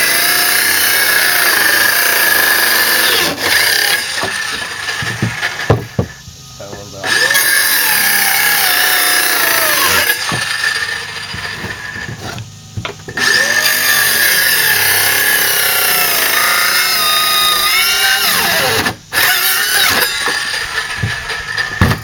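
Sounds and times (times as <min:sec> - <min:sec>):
circular saw cutting plywood: 0:00.0 - 0:22.0.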